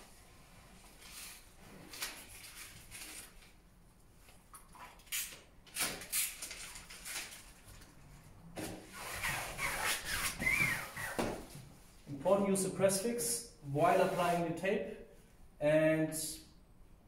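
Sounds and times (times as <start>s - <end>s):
adhesive tape rustling and crackling: 0.9s - 3.6s, 4.3s - 8.3s.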